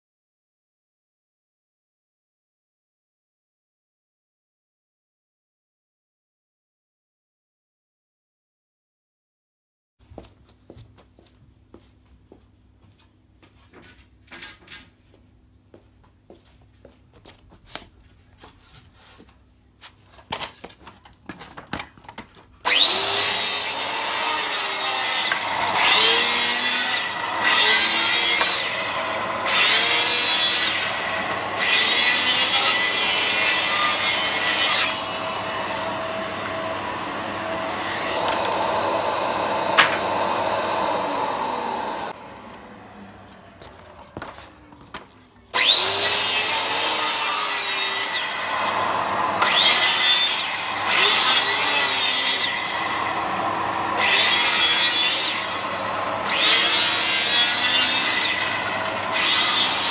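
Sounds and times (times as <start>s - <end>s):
circular saw cutting wood: 22.6s - 44.7s, 45.6s - 59.9s
vacuum humming: 22.7s - 44.6s, 48.2s - 56.4s, 58.3s - 59.8s.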